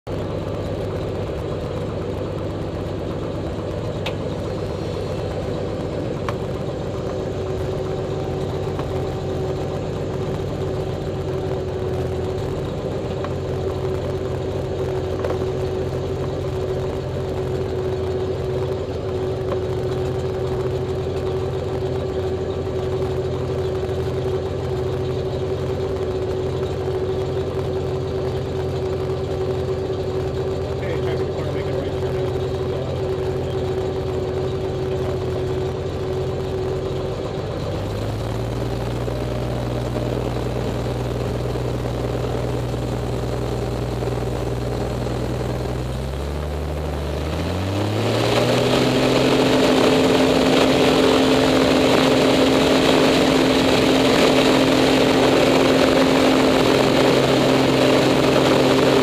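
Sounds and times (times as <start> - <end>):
propeller plane engine rumbling: 0.0 - 59.0
steady hum: 0.1 - 59.0.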